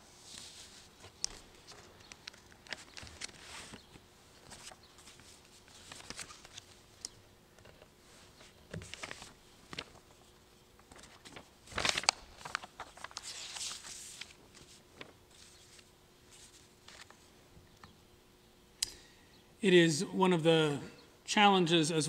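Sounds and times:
paper rustling and shuffling: 0:00.2 - 0:07.0, 0:07.6 - 0:17.3.

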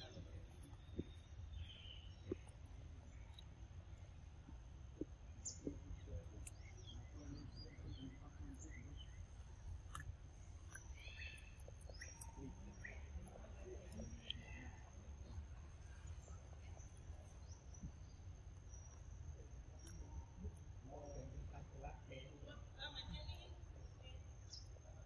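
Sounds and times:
bird chirps: 0:00.0 - 0:03.4, 0:05.4 - 0:19.0
low steady rumble: 0:00.0 - 0:25.0.

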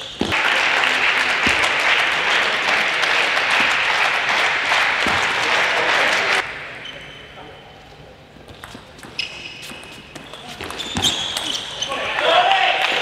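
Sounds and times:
audience applauding: 0:00.3 - 0:06.4.

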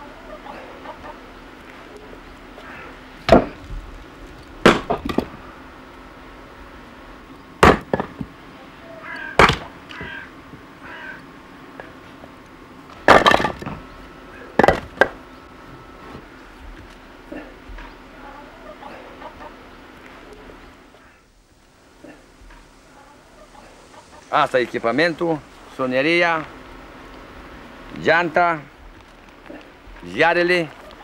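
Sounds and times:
axe chopping firewood: 0:03.3 - 0:03.6, 0:04.6 - 0:05.4, 0:07.6 - 0:08.3, 0:09.4 - 0:09.7, 0:13.0 - 0:13.8.

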